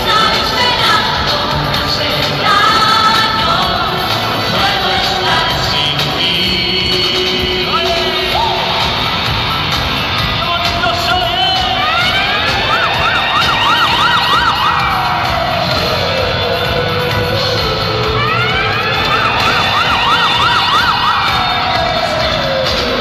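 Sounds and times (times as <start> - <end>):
siren wailing and warbling: 11.6 - 23.0.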